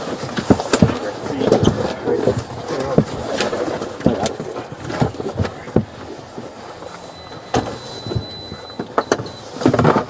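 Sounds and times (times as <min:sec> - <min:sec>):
knocks and rustling: 0:00.0 - 0:10.0
thin high tone: 0:06.8 - 0:09.6.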